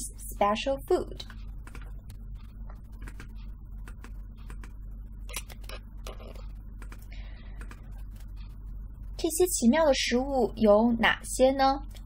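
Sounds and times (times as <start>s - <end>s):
steady low hum: 0.0s - 12.0s
rapid light clicking: 1.2s - 9.1s.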